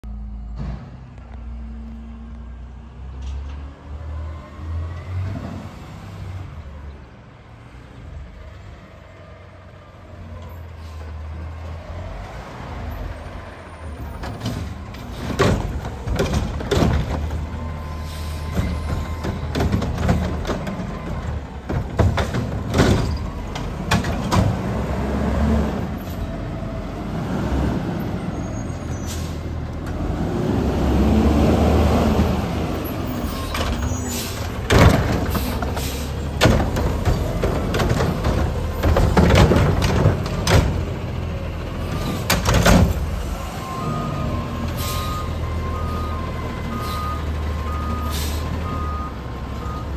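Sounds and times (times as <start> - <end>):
metal clanks and bangs: 33.5 - 41.0
air brake hisses: 35.4 - 36.2, 48.1 - 48.5.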